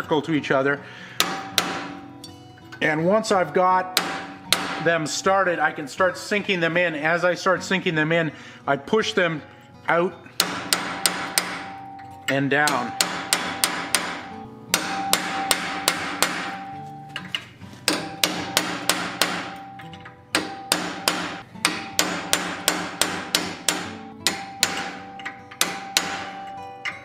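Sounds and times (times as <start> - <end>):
hammer striking metal punch: 1.2 - 2.9, 3.9 - 5.2, 10.3 - 27.0
steady metallic ringing tone: 9.4 - 17.3, 18.0 - 22.5, 24.0 - 27.0.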